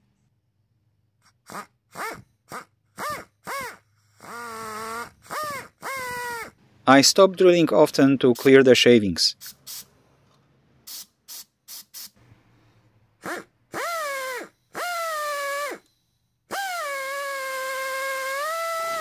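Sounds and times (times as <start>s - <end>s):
pneumatic drill whining: 1.2s - 6.6s, 13.2s - 19.0s
short air hisses: 9.4s - 10.0s, 10.9s - 12.2s.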